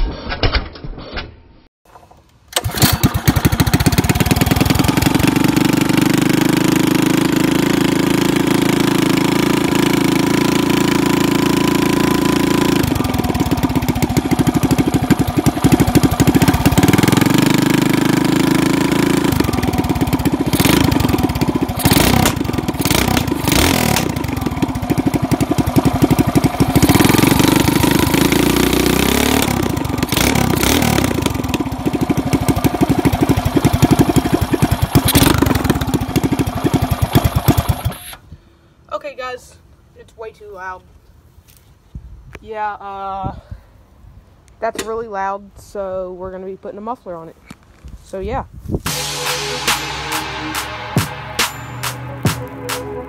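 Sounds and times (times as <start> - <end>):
sharp engine cracks: 1.9 - 5.2, 19.4 - 24.3
loud go-kart engine revving: 2.6 - 38.2.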